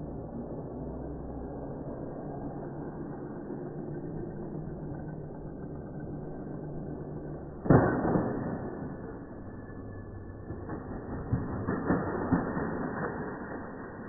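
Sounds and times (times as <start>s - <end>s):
zip line trolley rumbling on cable: 0.0s - 14.0s
trolley braking clatter: 7.7s - 14.0s.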